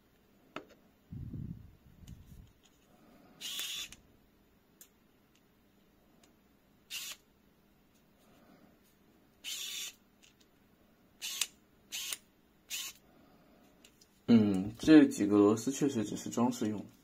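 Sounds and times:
screwdriver turning tiny screws: 0:03.4 - 0:04.0, 0:06.9 - 0:07.2, 0:09.4 - 0:10.4, 0:11.2 - 0:13.0.

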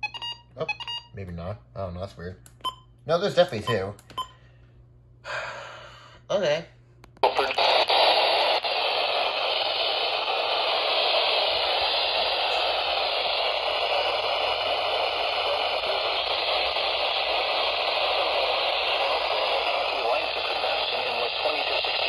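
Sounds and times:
radio static hiss: 0:07.2 - 0:22.0.

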